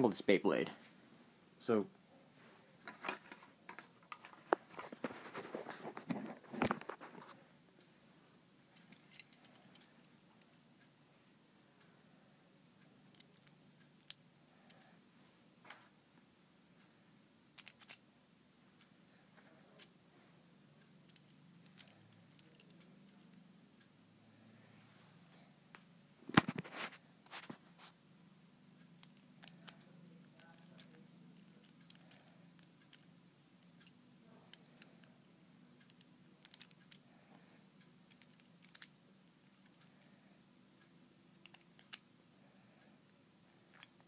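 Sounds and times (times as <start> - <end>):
toy parts rustling and clicking: 17.6 - 18.0, 21.1 - 23.4, 29.0 - 35.1, 35.8 - 37.0, 38.1 - 38.9, 41.3 - 42.1.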